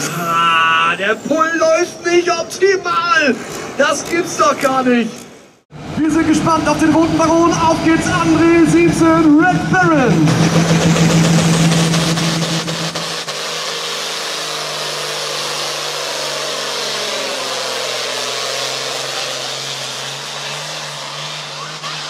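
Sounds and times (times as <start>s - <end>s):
diesel tractor engine at high revs: 5.7s - 22.0s.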